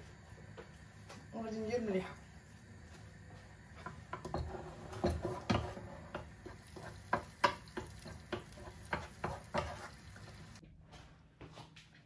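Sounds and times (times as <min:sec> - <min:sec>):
faint sizzle: 0:00.0 - 0:10.6
spoon knocking and scraping a pan: 0:02.8 - 0:10.6.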